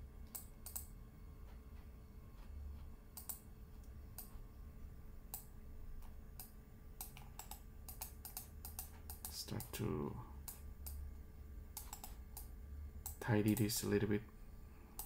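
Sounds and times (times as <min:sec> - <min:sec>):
faint low hum: 0:00.0 - 0:15.0
computer mouse clicks: 0:00.3 - 0:00.9, 0:03.1 - 0:04.4, 0:05.3 - 0:09.8, 0:10.4 - 0:11.0, 0:11.7 - 0:13.8.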